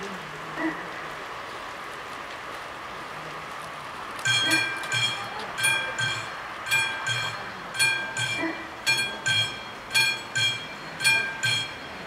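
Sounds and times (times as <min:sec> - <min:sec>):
level crossing bells ringing: 0:04.2 - 0:12.0.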